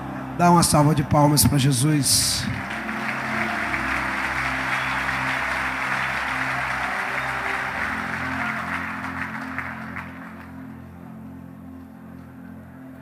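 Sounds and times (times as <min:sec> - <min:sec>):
soft music of sustained chords: 0:00.0 - 0:13.0
congregation applauding: 0:01.8 - 0:11.8.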